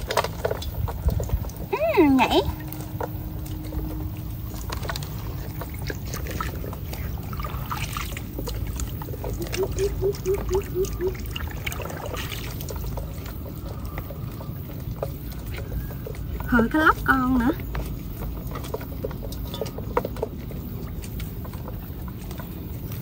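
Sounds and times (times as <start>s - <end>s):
muddy water splashing: 0.0s - 23.0s
quick chirping notes: 9.4s - 11.2s.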